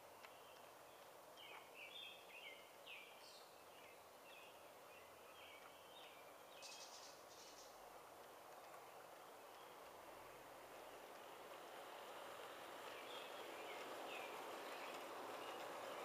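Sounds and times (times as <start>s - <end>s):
outdoor hiss: 0.0s - 16.0s
birds chirping: 0.1s - 7.9s, 12.1s - 16.0s.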